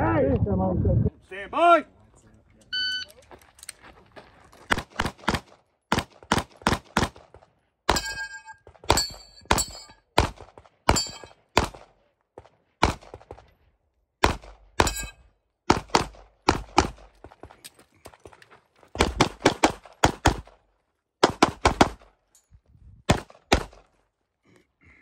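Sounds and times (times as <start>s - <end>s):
rapid pistol fire: 4.7s - 7.4s, 12.8s - 13.4s, 14.2s - 14.6s, 15.7s - 17.1s, 19.0s - 20.5s, 21.2s - 22.1s, 23.1s - 23.8s
steel target ringing: 7.9s - 10.0s, 10.9s - 11.3s, 14.8s - 15.2s.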